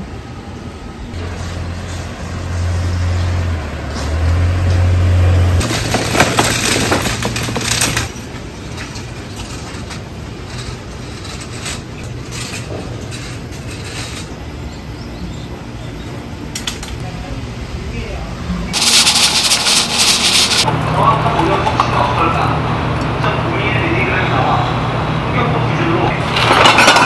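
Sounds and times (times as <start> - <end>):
low engine hum: 0.0 - 6.2
metal frame clattering: 5.6 - 14.4, 18.7 - 22.1, 26.2 - 27.0.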